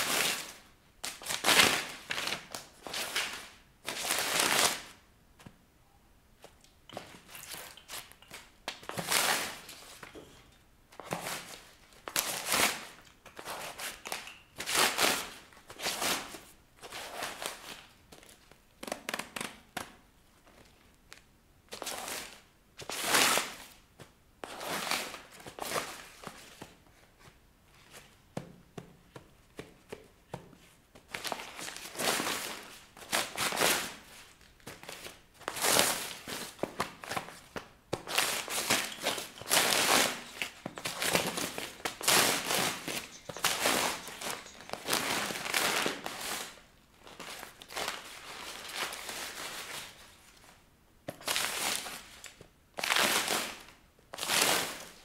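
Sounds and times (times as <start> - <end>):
paper ripping and crinkling: 38.1 - 46.6.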